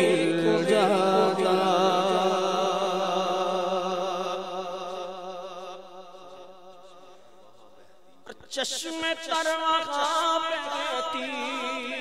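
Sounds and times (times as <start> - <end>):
man singing with vibrato: 0.0 - 12.0.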